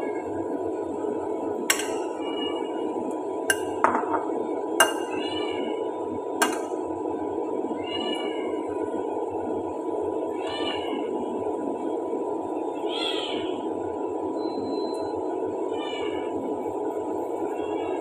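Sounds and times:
dishes clinking in metal rack: 1.7s - 2.1s, 3.5s - 5.2s, 6.4s - 6.8s.

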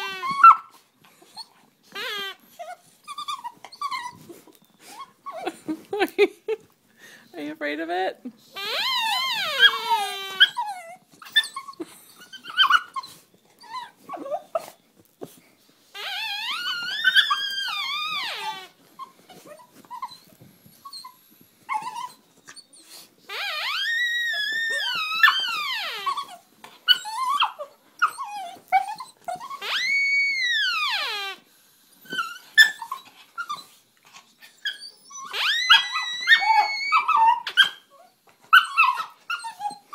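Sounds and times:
dog whimpering and yipping: 0.0s - 6.0s, 8.5s - 15.4s, 16.0s - 31.4s, 32.0s - 39.9s.

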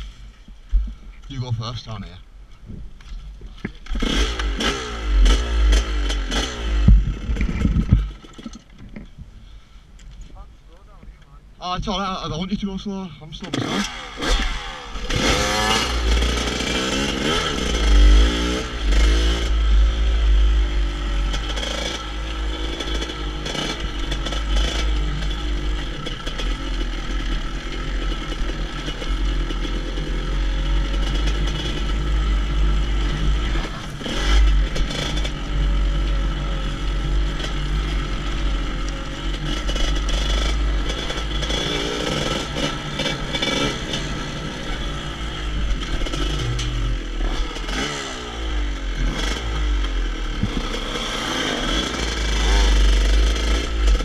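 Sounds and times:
wind rumbling on microphone: 2.6s - 3.6s, 6.8s - 9.4s
motorcycle engine revving: 3.8s - 8.7s, 13.4s - 54.0s.

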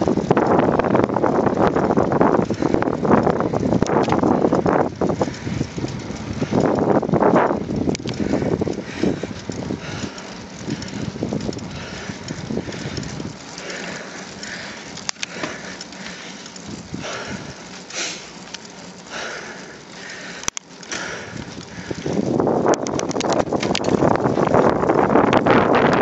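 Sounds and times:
bicycle rolling on asphalt: 0.0s - 26.0s
wind noise: 0.0s - 26.0s
sharp clicks: 7.8s - 24.6s.

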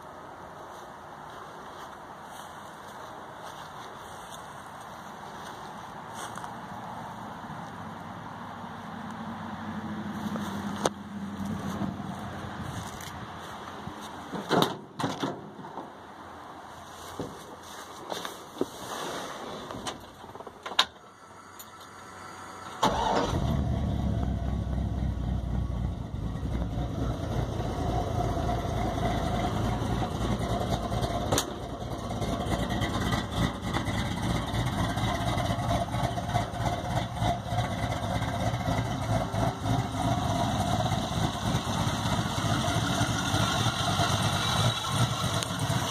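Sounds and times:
engine starting and idling: 21.4s - 45.9s.

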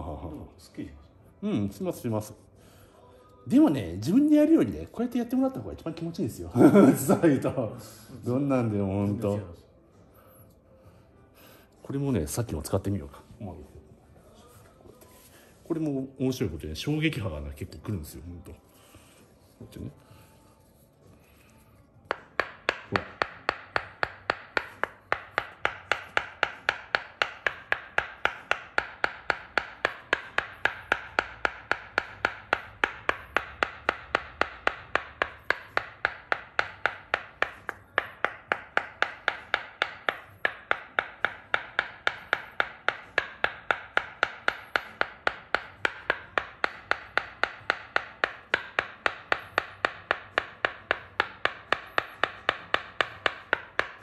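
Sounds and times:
wooden mallet tapping wooden tool: 20.7s - 54.0s.

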